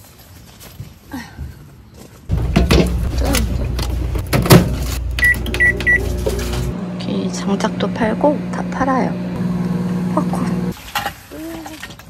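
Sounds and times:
microwave oven humming: 2.3s - 10.8s
microwave short beeps: 5.2s - 6.2s.

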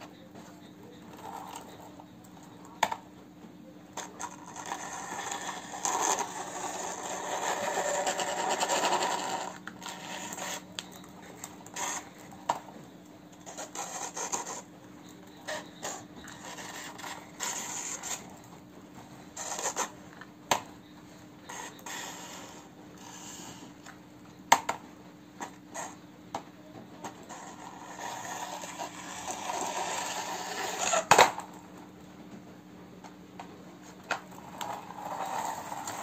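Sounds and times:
toy truck rolling and scraping: 0.1s - 3.0s, 3.9s - 18.6s, 19.3s - 20.6s, 21.4s - 24.0s, 27.0s - 31.6s, 33.8s - 36.0s.

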